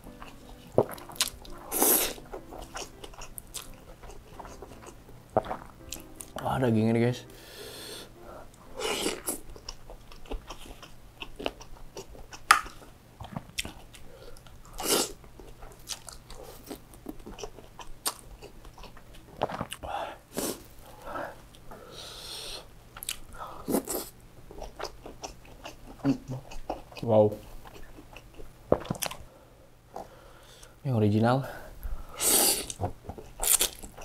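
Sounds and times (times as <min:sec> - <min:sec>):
wet chewing: 0:00.0 - 0:06.4, 0:08.0 - 0:20.6, 0:23.0 - 0:29.2, 0:32.6 - 0:34.0
breathy blow of air: 0:07.3 - 0:09.1.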